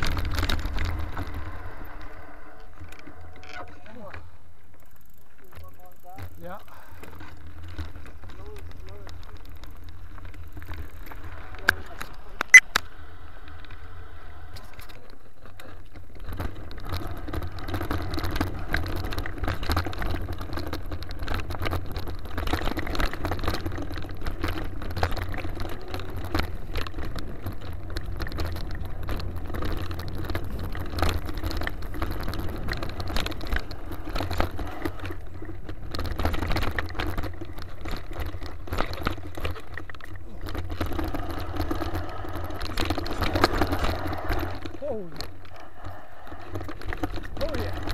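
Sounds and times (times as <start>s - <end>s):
bike rattling over bumps: 0.0s - 47.9s
bike tyres rolling on gravel: 0.0s - 47.9s
wind rumbling on microphone: 13.2s - 47.9s.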